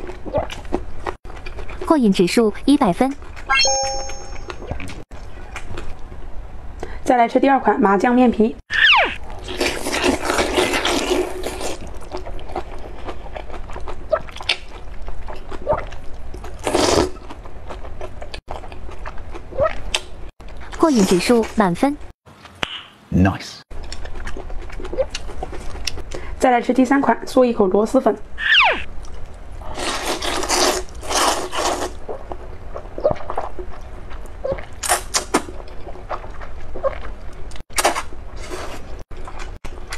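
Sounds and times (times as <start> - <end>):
person slurping noodles: 16.6 - 17.1.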